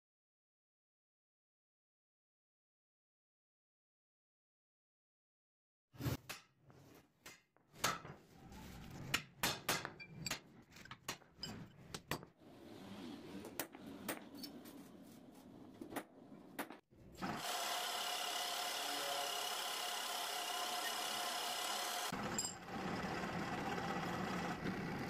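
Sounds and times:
drill press motor whine: 0:17.2 - 0:25.0.

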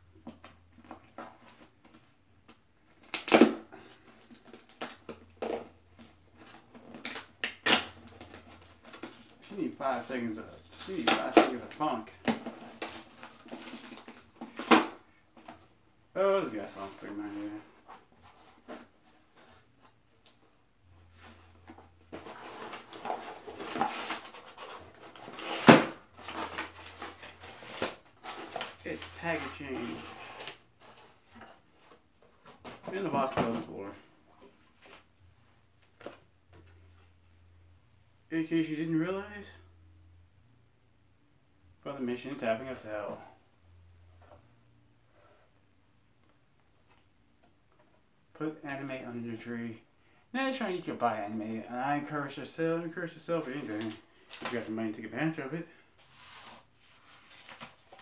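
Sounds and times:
cardboard box rustling and scraping: 0:21.1 - 0:32.9, 0:56.0 - 0:58.0
cardboard rubbing and scraping: 0:56.0 - 0:58.0.

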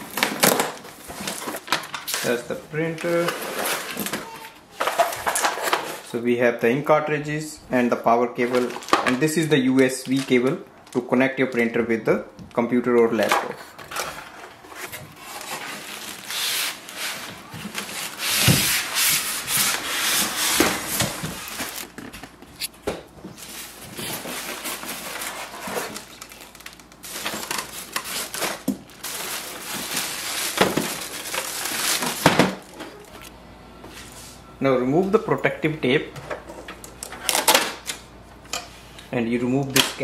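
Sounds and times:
foam and plastic bag crinkling: 0:00.0 - 0:06.1, 0:08.4 - 0:11.6, 0:13.8 - 0:22.6, 0:23.4 - 0:33.3.

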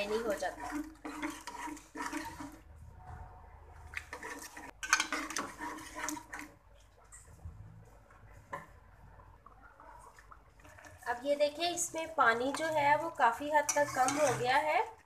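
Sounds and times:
metal spoon scraping pan: 0:00.0 - 0:02.7, 0:03.9 - 0:06.6, 0:12.3 - 0:15.0
meat and gravy sloshing: 0:00.0 - 0:03.0, 0:03.6 - 0:07.4.

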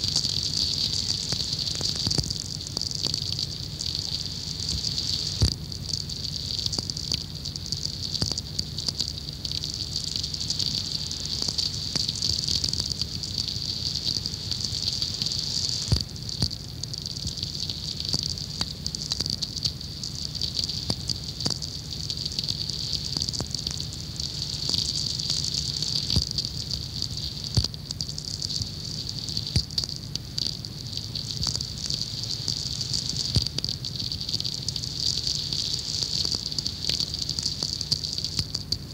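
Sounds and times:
steady radio hiss: 0:00.0 - 0:06.8, 0:08.6 - 0:38.9
crackling radio clicks: 0:05.4 - 0:06.0, 0:15.8 - 0:16.6, 0:26.1 - 0:26.4, 0:27.6 - 0:28.6, 0:33.3 - 0:33.7.

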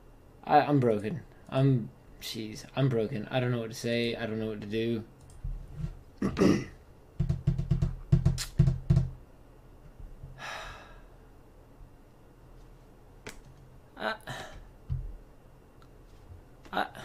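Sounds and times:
breathy sigh: 0:10.4 - 0:11.2.

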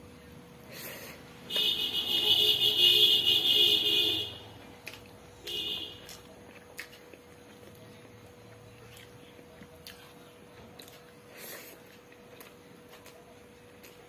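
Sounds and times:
loud horn blasts: 0:01.5 - 0:04.5, 0:05.4 - 0:06.1.

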